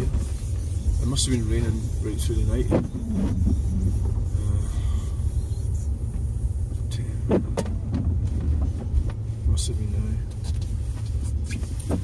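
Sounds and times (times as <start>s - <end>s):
car engine rumble: 0.0s - 12.0s
road noise: 0.0s - 12.0s.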